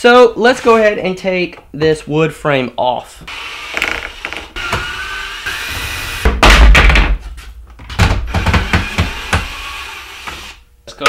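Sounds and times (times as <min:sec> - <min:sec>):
wooden knocks: 0:06.3 - 0:09.5.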